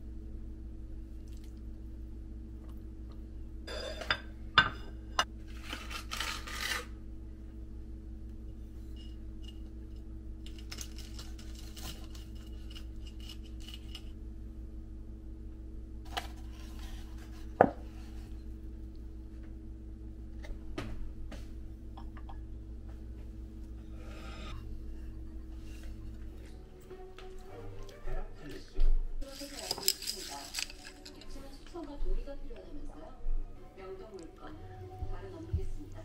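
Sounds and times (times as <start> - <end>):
steady low hum: 0.0 - 36.0
dishes clinking and knocking: 3.7 - 5.3
rustling: 29.2 - 31.6.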